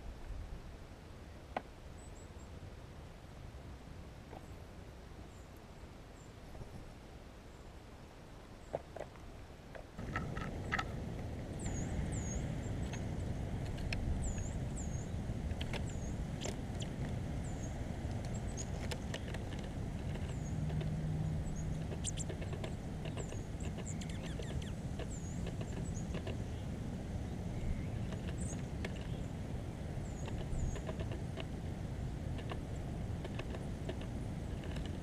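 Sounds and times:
steady low rumble: 10.0 - 35.0
high thin bird calls: 21.5 - 26.7.

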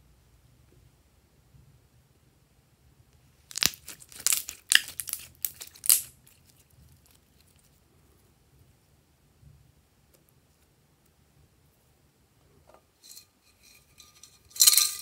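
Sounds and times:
slime crackling and popping: 3.5 - 7.4.

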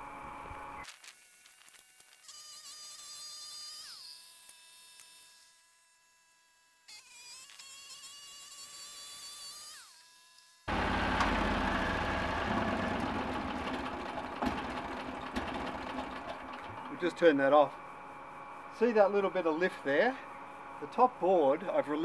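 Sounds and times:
loud steady engine noise: 10.7 - 18.7
bandsaw mill high whine: 10.7 - 22.0.

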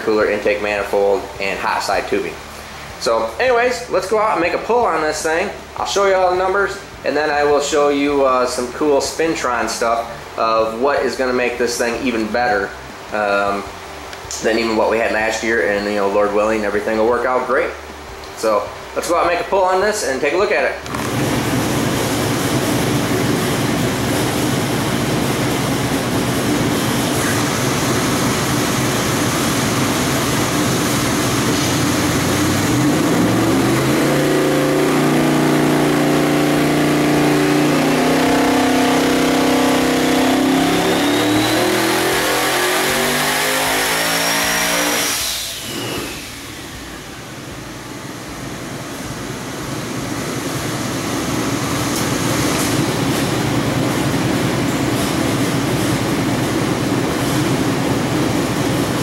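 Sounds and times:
engine at full throttle: 20.8 - 59.0
turbo whine: 20.8 - 59.0.

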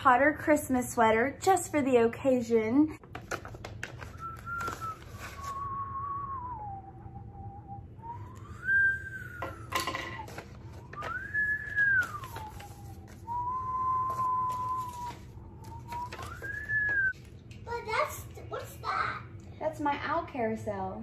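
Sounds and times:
woman whistling a slow tune: 4.1 - 10.3, 10.9 - 17.1.

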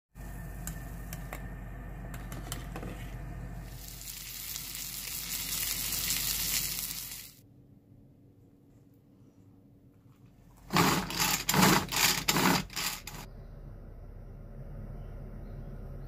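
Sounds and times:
chicken frying in oil: 3.7 - 7.4.

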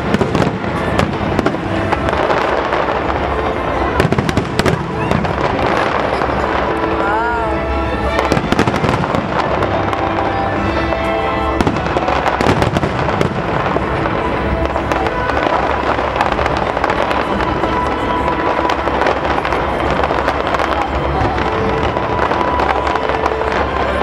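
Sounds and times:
fireworks crackling and popping: 0.0 - 24.0
music with held notes: 0.0 - 24.0.

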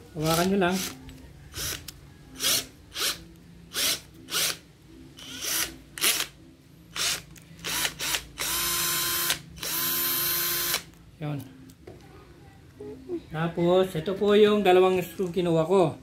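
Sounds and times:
cordless drill whirring: 0.8 - 1.0, 5.2 - 6.3, 7.0 - 10.8.

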